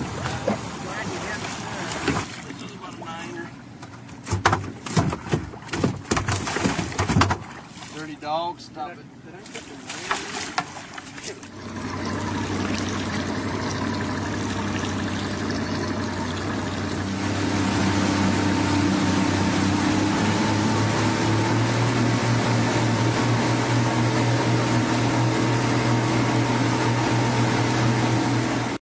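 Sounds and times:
motorboat engine running: 0.0s - 28.8s
water rushing along hull: 0.0s - 28.8s.

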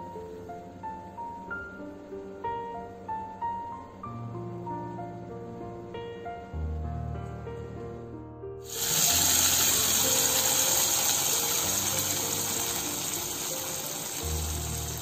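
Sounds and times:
hot ghee sizzling in milk: 8.6s - 15.0s.

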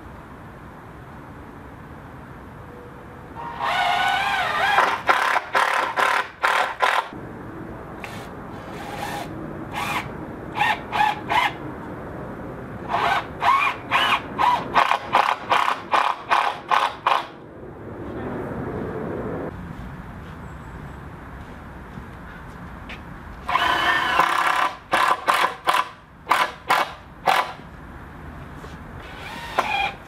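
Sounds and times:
power drill driving a screw: 23.5s - 27.5s, 29.0s - 30.0s.

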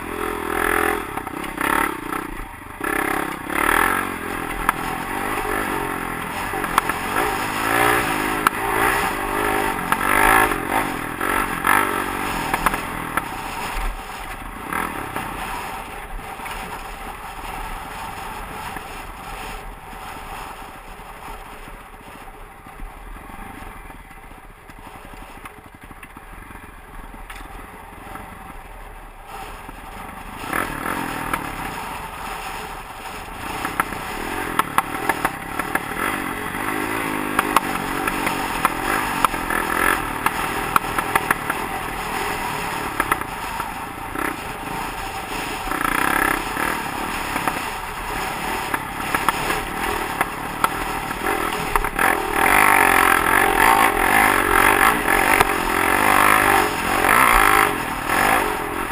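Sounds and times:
dirt bike engine revving: 0.0s - 20.5s, 29.3s - 58.9s
bike rattling over rough ground: 0.0s - 58.9s.

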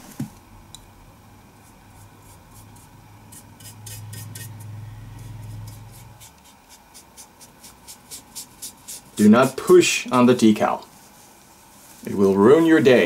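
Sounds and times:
low steady hum: 0.0s - 13.0s
brush rubbing on steel helmet: 5.2s - 9.8s, 11.0s - 13.0s.

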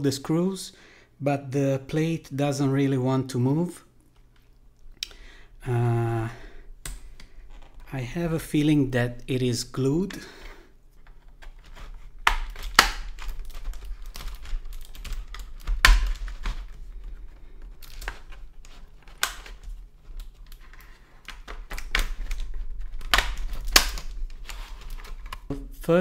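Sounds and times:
plastic clicks and snaps: 12.2s - 16.8s, 17.6s - 25.6s.

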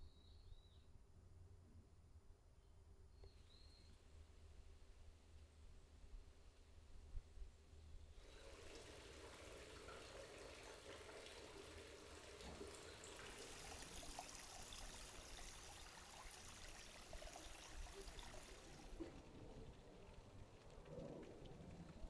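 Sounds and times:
water trickling over stones: 8.2s - 22.0s.

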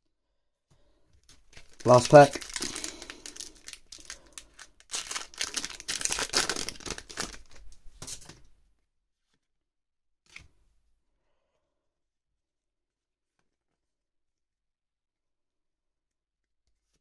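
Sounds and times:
foil pack tearing and crinkling: 1.5s - 8.4s.

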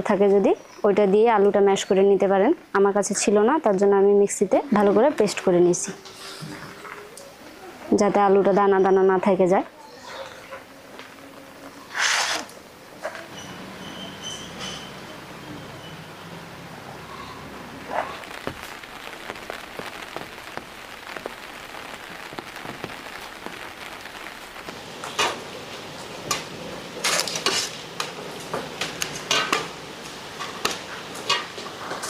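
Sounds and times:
rain falling: 12.6s - 32.0s.

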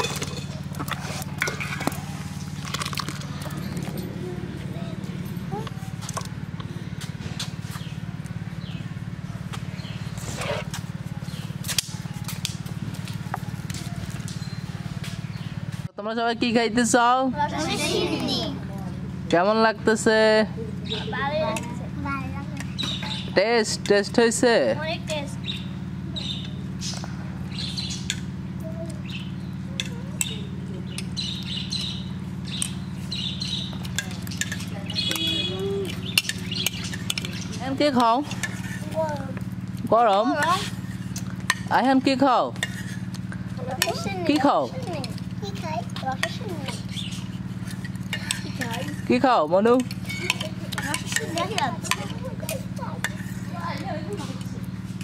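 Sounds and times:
spoons scraping on plates: 0.0s - 2.0s, 33.9s - 39.0s, 40.2s - 45.2s, 46.1s - 53.6s
birds chirping: 0.0s - 15.8s, 20.5s - 24.2s, 25.0s - 55.0s
low mechanical hum: 0.0s - 55.0s.

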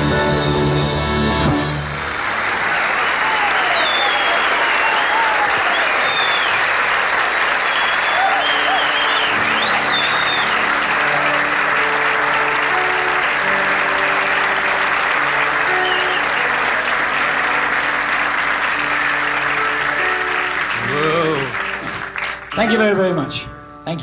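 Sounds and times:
audience applauding: 1.7s - 23.0s
band holding sustained notes: 8.2s - 23.4s.

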